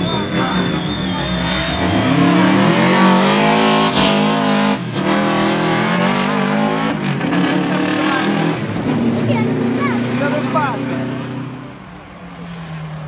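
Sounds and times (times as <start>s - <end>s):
rally car engine accelerating: 0.0s - 11.9s.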